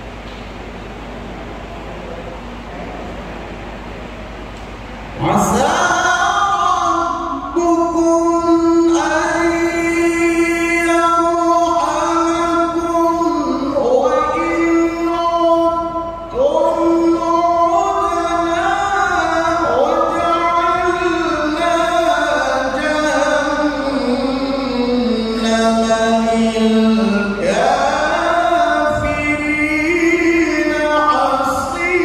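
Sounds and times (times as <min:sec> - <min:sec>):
man chanting recitation: 0:05.2 - 0:32.0.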